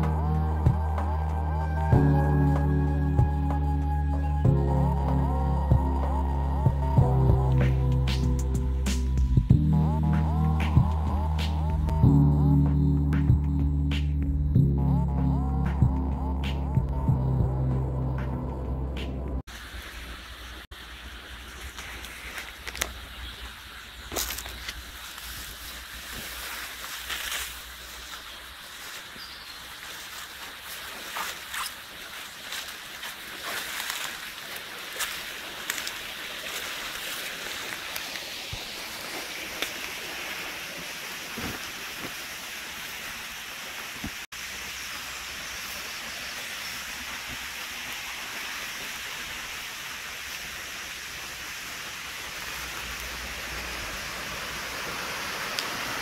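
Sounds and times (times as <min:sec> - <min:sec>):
leaves rustling against camera: 0:19.5 - 0:43.2, 0:44.0 - 0:56.0
stream rushing: 0:19.5 - 0:56.0.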